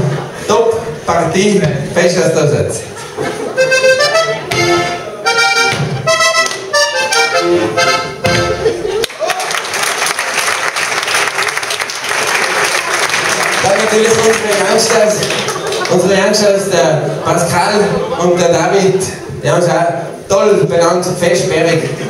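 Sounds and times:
accordion dance tune: 0:03.5 - 0:09.0
crowd applauding: 0:08.9 - 0:16.2.

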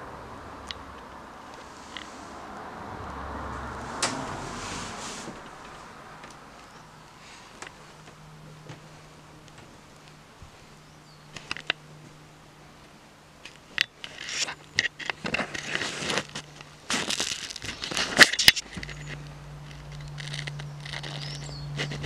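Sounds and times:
low hum: 0:00.0 - 0:15.7.

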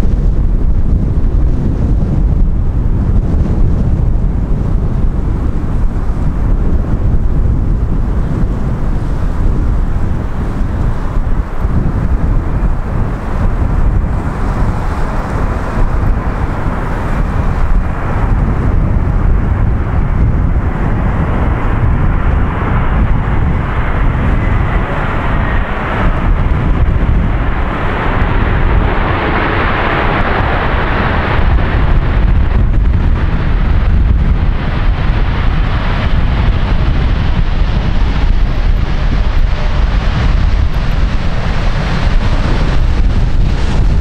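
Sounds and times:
jet airliner engine noise: 0:00.0 - 0:44.0
strong wind buffeting microphone: 0:00.0 - 0:44.0.

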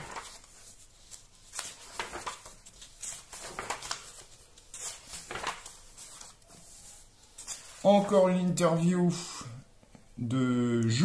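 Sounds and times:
magazine pages rustling: 0:00.0 - 0:08.8.

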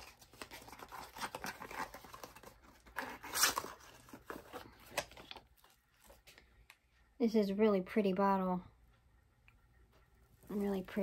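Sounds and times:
cardboard box rustling and crinkling: 0:00.0 - 0:06.2.

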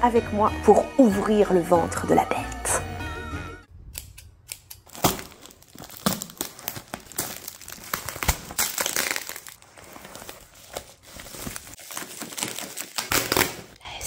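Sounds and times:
sharp packaging snaps: 0:03.9 - 0:09.6, 0:11.8 - 0:13.8
packaging crinkling and tearing: 0:04.8 - 0:13.8.

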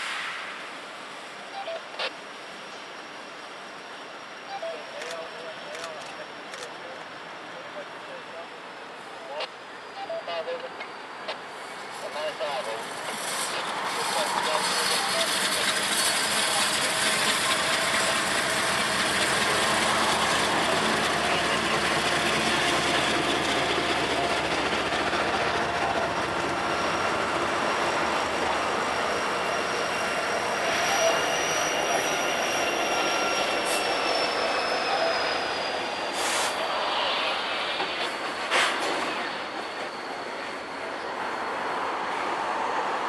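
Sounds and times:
diesel locomotives passing: 0:05.3 - 0:43.0
wheel-on-rail noise: 0:11.6 - 0:42.4
high wheel squeal: 0:12.9 - 0:42.7.

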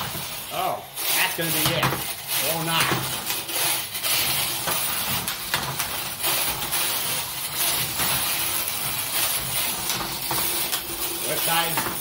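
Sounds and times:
small electric motors whirring: 0:00.0 - 0:12.0
plastic parts clicking and knocking: 0:09.8 - 0:12.0.

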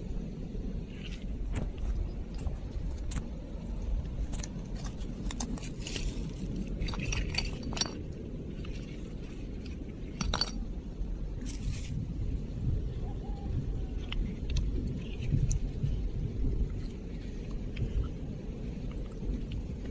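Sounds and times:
low rumble: 0:00.0 - 0:19.9
coral rubble and shells clinking: 0:00.9 - 0:11.8.

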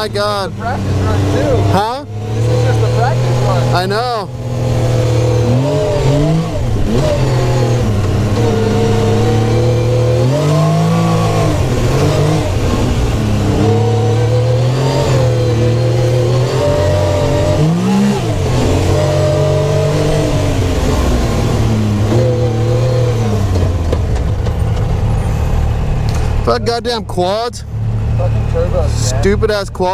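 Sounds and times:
engine revving from inside cab: 0:00.0 - 0:26.9.

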